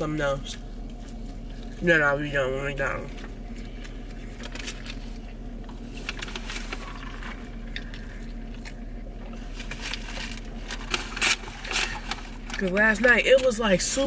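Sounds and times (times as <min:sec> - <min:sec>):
steady low hum: 0:00.0 - 0:14.0
paper wrappers rustling: 0:03.6 - 0:14.0.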